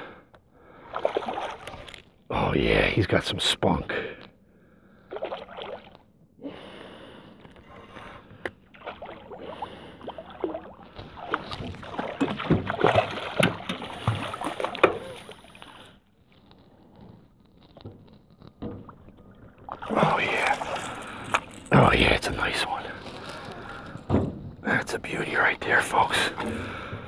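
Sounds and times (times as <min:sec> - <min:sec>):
water splashing and churning: 0:00.6 - 0:02.4, 0:04.9 - 0:06.1, 0:07.7 - 0:16.5, 0:18.6 - 0:27.0.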